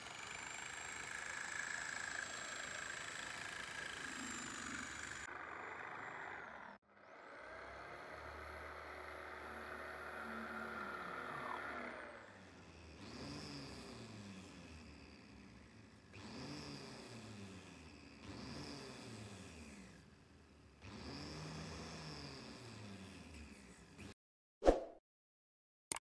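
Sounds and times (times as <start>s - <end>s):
angle grinder sanding wood: 0.0s - 5.3s
electric jigsaw cutting wood: 0.0s - 24.2s.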